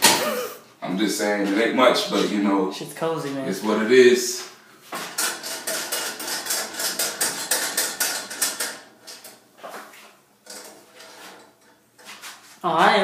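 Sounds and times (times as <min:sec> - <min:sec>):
metal mailbox door rattling: 0:05.1 - 0:09.2
sharp metallic clicks and knocks: 0:05.1 - 0:09.4.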